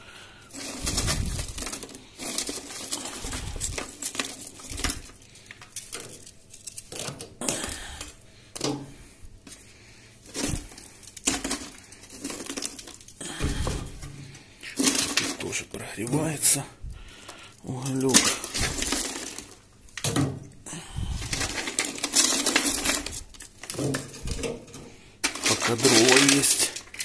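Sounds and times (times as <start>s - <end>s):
coal clinking and scraping against metal: 0.0s - 27.0s
heavy thumps: 13.3s - 14.4s.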